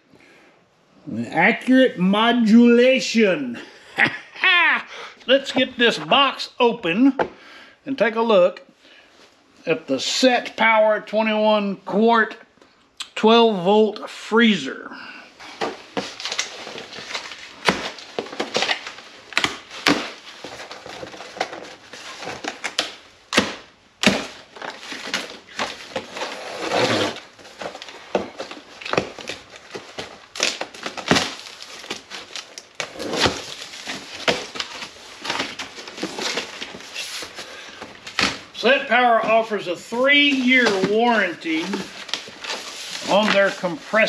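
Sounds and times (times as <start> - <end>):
cardboard flaps crinkling: 15.4 - 44.0
plastic straps snapping: 16.0 - 36.8
knife slitting packing tape: 22.2 - 27.2.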